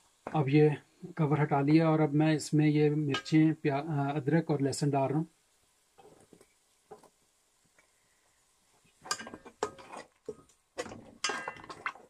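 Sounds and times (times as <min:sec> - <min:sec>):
spatula scraping metal pot: 0:09.0 - 0:12.0.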